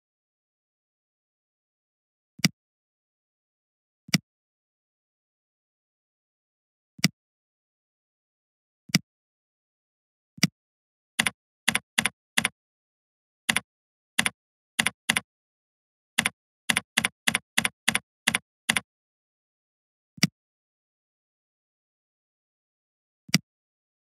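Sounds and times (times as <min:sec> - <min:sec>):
mouse click: 0:11.2 - 0:12.5, 0:14.2 - 0:15.2, 0:16.2 - 0:18.8
keyboard key clicks: 0:11.2 - 0:12.6, 0:14.2 - 0:15.2, 0:16.2 - 0:18.8.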